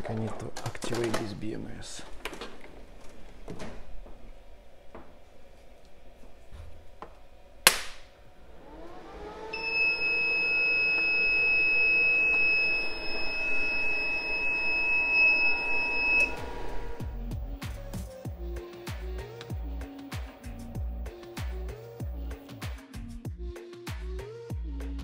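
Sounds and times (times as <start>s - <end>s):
inverter hum: 0.0s - 22.6s
sharp electrical snap: 7.6s - 8.2s
steady high-pitched beep: 9.6s - 17.3s
background music: 16.2s - 25.0s.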